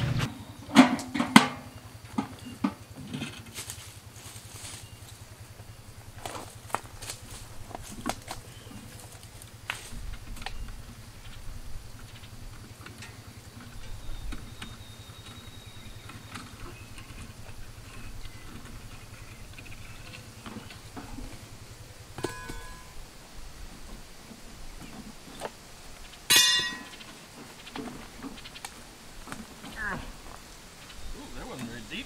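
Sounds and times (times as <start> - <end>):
low steady rumble: 1.6 - 32.0
ringing metal clang: 22.2 - 23.1, 26.3 - 27.1
clicks and clinks on metal post: 26.3 - 27.2.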